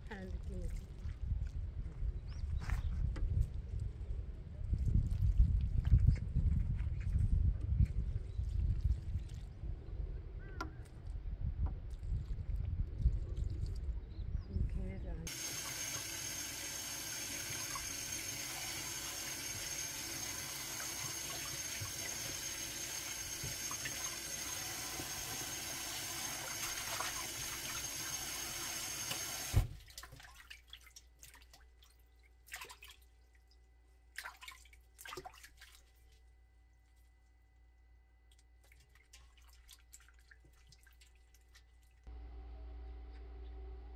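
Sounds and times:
faucet spray running into pot: 15.3 - 29.6
splashes in water: 29.6 - 33.1, 34.1 - 36.2.

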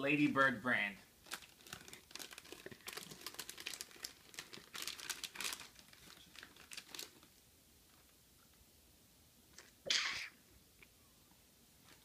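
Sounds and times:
plastic snack packet crinkling: 1.2 - 7.4.

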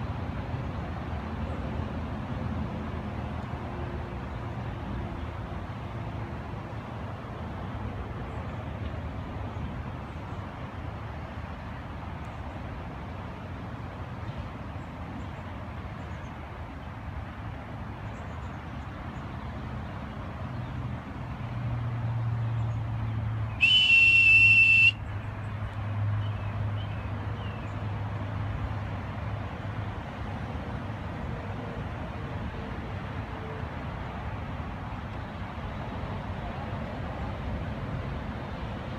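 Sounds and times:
outdoor background rumble: 0.0 - 38.9
high-pitched whistle blast: 23.6 - 25.0.

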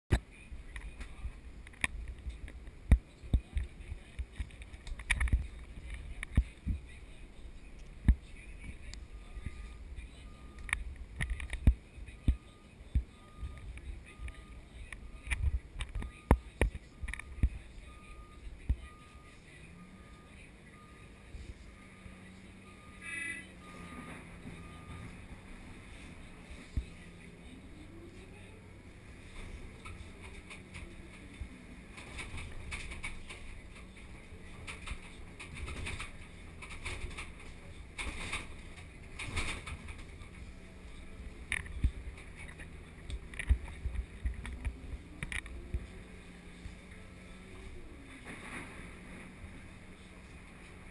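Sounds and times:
excavator engine running: 0.1 - 50.9
warning alarm beeping: 8.7 - 10.9, 12.0 - 27.2
brief high-pitched tone: 22.7 - 25.2.

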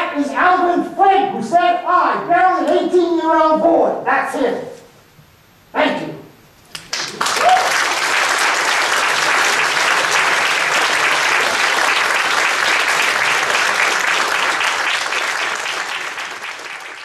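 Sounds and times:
audience applauding: 6.7 - 17.0.

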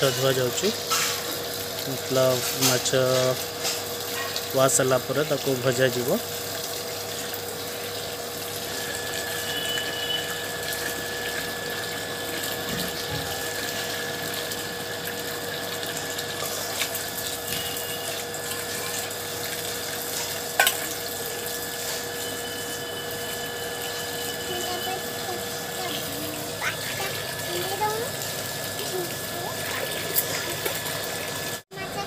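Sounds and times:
water pouring into a steel bowl: 0.0 - 31.6.

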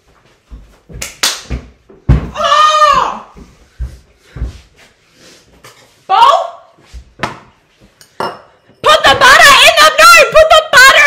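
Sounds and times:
dull thumps: 1.5 - 4.7.

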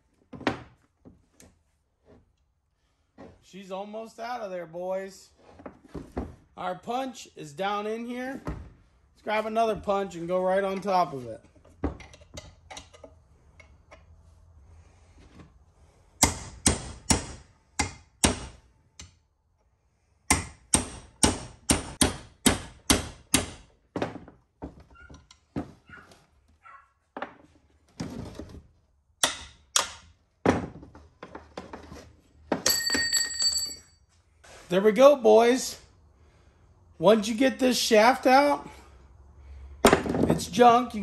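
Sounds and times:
ringing metal clink: 32.6 - 34.0.

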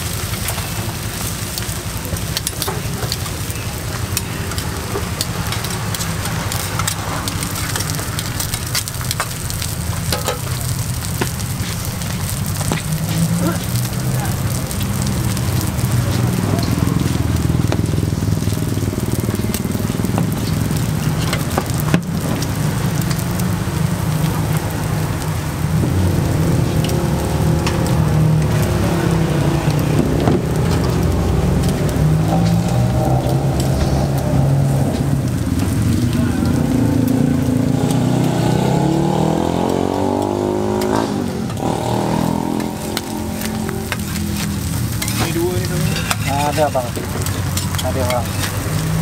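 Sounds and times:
crackling spatters: 0.0 - 49.0
patties sizzling on griddle: 0.0 - 49.0
motorcycle engine accelerating: 0.8 - 45.0
low rumble: 1.2 - 39.6.

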